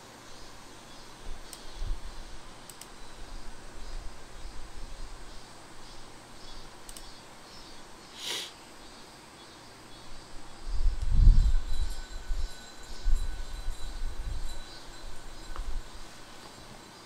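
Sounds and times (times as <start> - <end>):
computer mouse clicks: 1.5 - 1.8, 2.6 - 3.0, 6.8 - 7.2
short hiss: 8.1 - 8.6.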